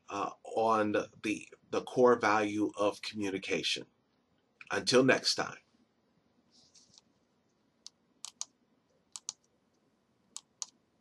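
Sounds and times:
soft hiss: 0:00.0 - 0:11.0
computer keys clicking: 0:07.8 - 0:09.5, 0:10.3 - 0:10.8.

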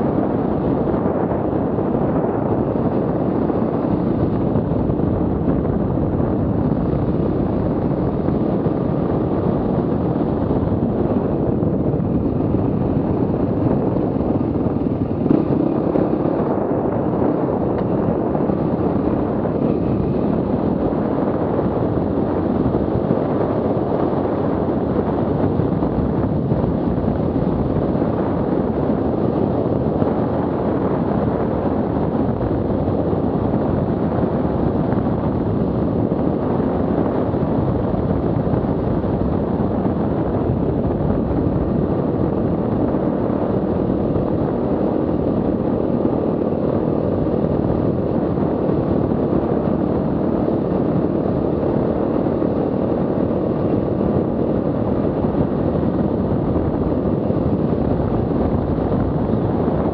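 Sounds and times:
wind rushing on microphone: 0:00.0 - 0:59.9.

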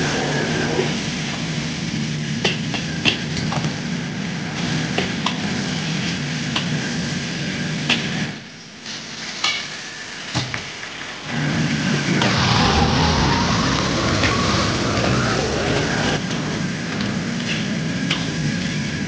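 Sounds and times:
chicken sizzling in a wok: 0:00.0 - 0:12.3, 0:16.2 - 0:19.0
gas burner rushing: 0:10.6 - 0:19.0.

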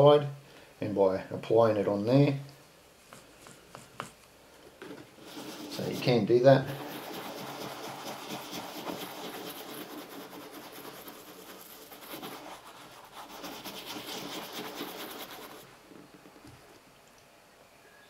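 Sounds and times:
cloth rubbing polish on leather: 0:05.2 - 0:15.7.

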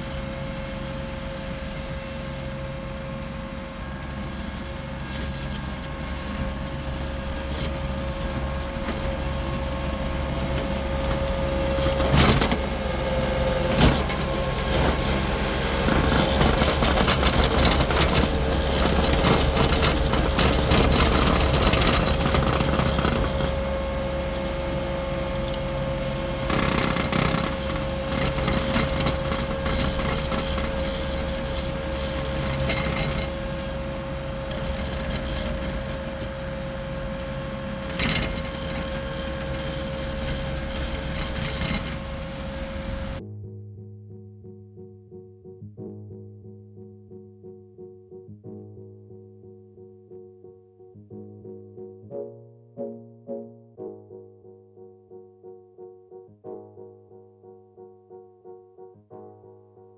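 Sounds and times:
diesel engine under load: 0:00.0 - 0:43.2
steady whine: 0:00.0 - 0:43.3.

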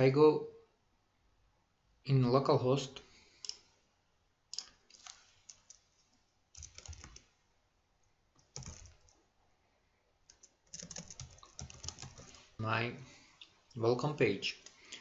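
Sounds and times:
faint keyboard typing: 0:04.6 - 0:07.4, 0:08.4 - 0:09.2, 0:10.2 - 0:12.6.

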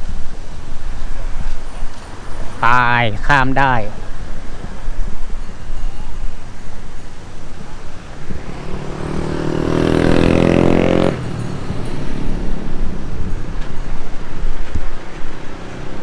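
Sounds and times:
wind buffeting microphone: 0:03.8 - 0:16.0
vehicle engine revving: 0:07.6 - 0:13.6.

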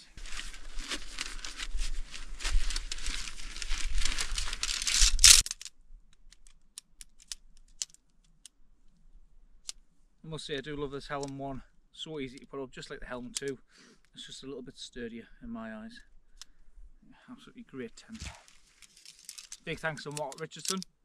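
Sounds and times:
tent fabric rustling and crinkling: 0:00.0 - 0:05.5, 0:18.1 - 0:19.8
tent poles clicking together: 0:03.8 - 0:08.6, 0:18.2 - 0:20.9.

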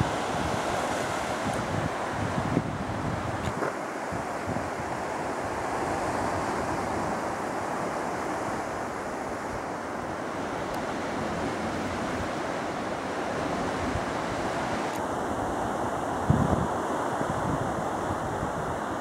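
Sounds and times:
sea surf breaking on rocks: 0:00.0 - 0:19.0
wind buffeting microphone: 0:00.0 - 0:19.0.

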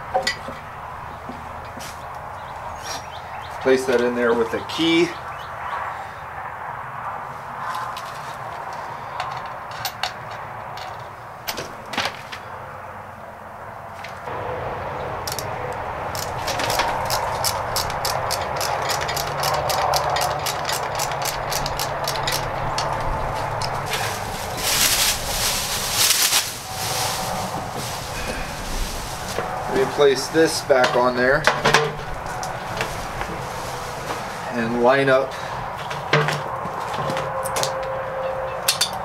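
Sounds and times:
ratchet wrench clicking: 0:16.1 - 0:23.0
sharp metal knocks: 0:16.1 - 0:23.8, 0:30.6 - 0:32.6
plastic wrap rustling: 0:23.1 - 0:31.2, 0:32.0 - 0:34.6.

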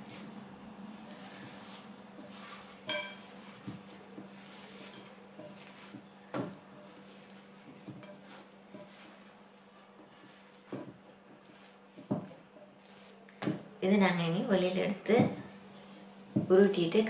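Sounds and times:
bowl and cover clinking: 0:02.9 - 0:03.4.

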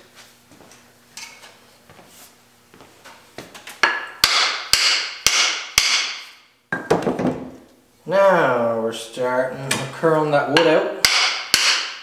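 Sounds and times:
axe head ringing: 0:03.8 - 0:07.0, 0:10.5 - 0:12.0.

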